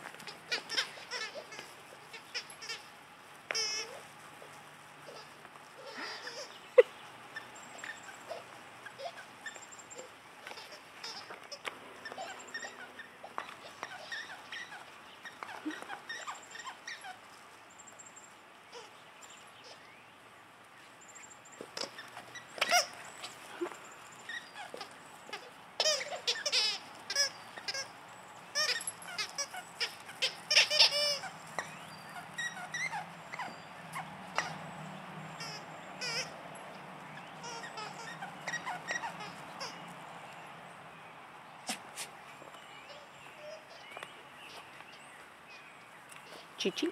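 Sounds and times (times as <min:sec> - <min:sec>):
dog squeaker toys squeaking: 0:00.2 - 0:02.9, 0:03.5 - 0:04.0, 0:05.0 - 0:17.2, 0:21.8 - 0:27.9, 0:28.5 - 0:34.6, 0:35.3 - 0:36.4, 0:37.2 - 0:39.9.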